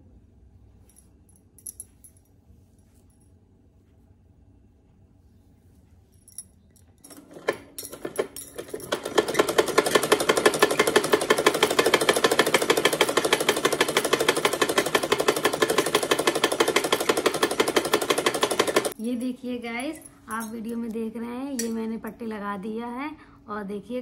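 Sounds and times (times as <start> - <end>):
sewing machine clicks: 7.1 - 19.0
sewing machine rattling: 7.1 - 19.0.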